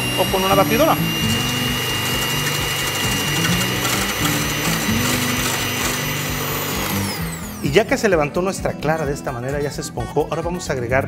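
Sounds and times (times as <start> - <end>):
electric hand mixer whine: 0.0 - 8.1.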